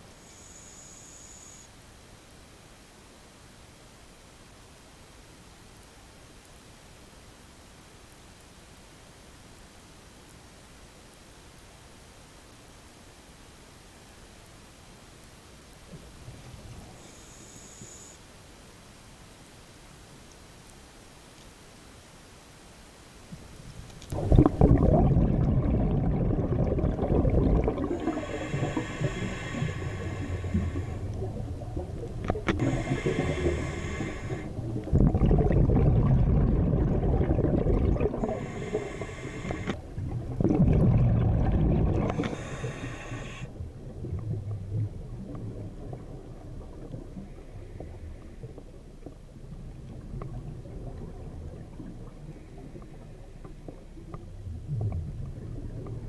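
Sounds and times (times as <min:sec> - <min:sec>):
exhaled bubbles rumbling: 0:24.1 - 0:56.0
regulator hissing inhales: 0:27.9 - 0:31.1, 0:32.5 - 0:34.6, 0:38.2 - 0:39.8, 0:42.0 - 0:43.5.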